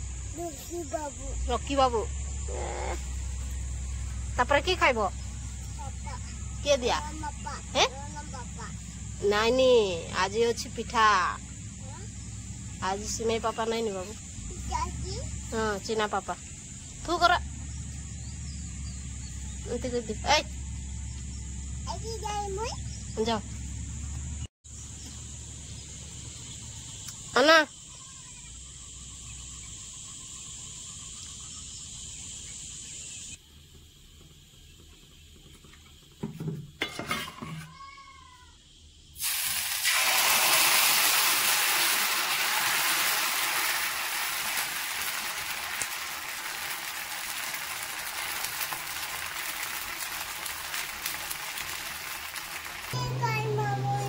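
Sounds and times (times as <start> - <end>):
batter sizzling on griddle: 39.1 - 54.0.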